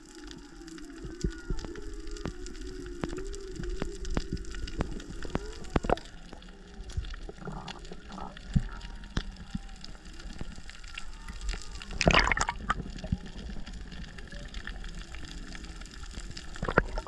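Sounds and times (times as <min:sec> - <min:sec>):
gush of water noise: 0:09.2 - 0:17.0.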